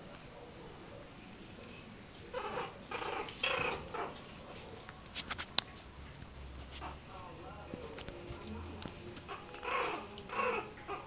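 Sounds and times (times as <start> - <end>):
puppies yipping: 2.2 - 4.8, 6.6 - 11.0.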